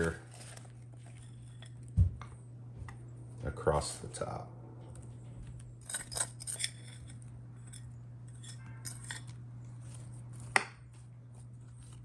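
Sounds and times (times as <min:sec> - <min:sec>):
steady low hum: 0:00.0 - 0:12.0
metal spoon clinking on glass: 0:05.9 - 0:09.3.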